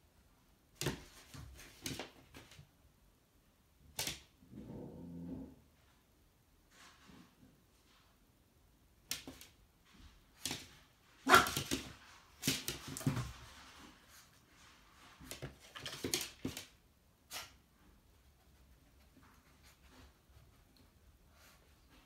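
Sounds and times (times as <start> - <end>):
puppy barking: 11.2 - 11.6.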